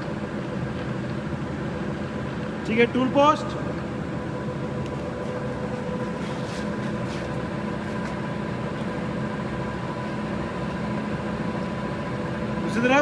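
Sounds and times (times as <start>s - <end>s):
lathe humming: 0.0s - 13.0s
faint light scrapes of tool slide: 6.1s - 7.4s.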